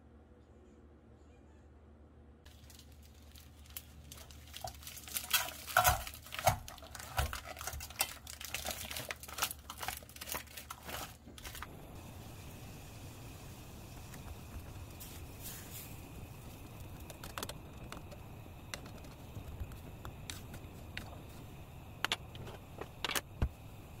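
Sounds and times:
plastic pouch crinkling: 2.5s - 11.7s
faint steady hiss: 2.5s - 24.0s.

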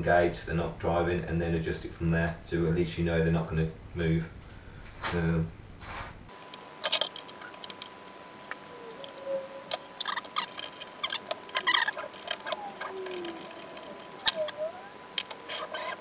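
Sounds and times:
faint high whine: 0.0s - 16.0s
hard parts clicking and rattling: 6.4s - 16.0s.

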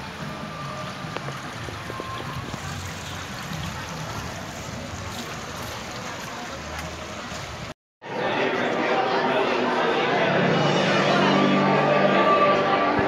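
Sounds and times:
water feature rushing: 0.0s - 7.8s
faint crowd voices: 0.0s - 13.0s.

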